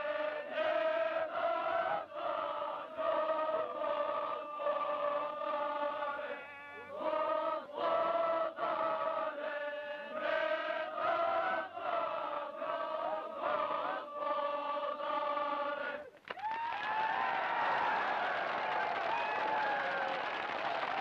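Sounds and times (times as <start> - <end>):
chant-like music: 0.0 - 16.2.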